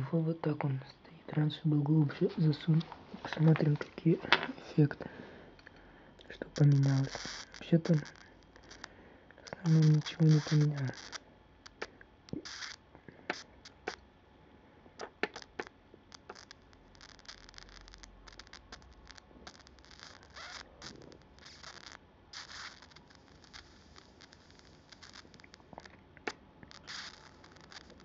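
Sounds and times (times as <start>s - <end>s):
electric arc crackling: 6.3s - 14.0s, 15.0s - 28.0s.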